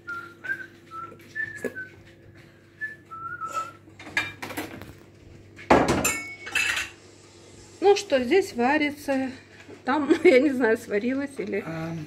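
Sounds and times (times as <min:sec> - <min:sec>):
person whistling a tune: 0:00.0 - 0:02.0, 0:02.8 - 0:03.8
kitchen clatters: 0:03.6 - 0:07.2.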